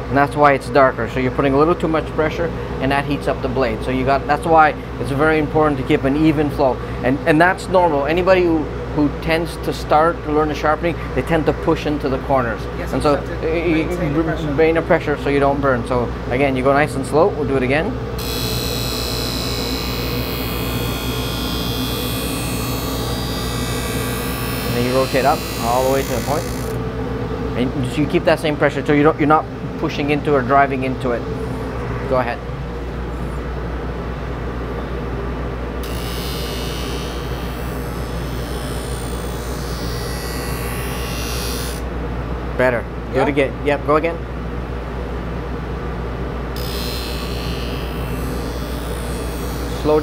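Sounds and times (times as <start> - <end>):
motor hum: 17.9 - 28.6, 30.8 - 42.5, 46.0 - 50.0
grinding wheel hiss on blade: 18.2 - 26.8, 35.8 - 41.8, 46.6 - 50.0.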